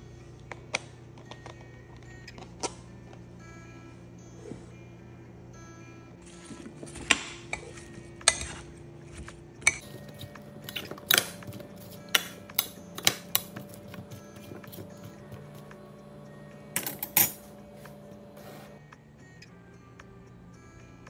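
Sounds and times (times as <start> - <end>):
metal spoon scraping ceramic dish: 9.8 - 15.2.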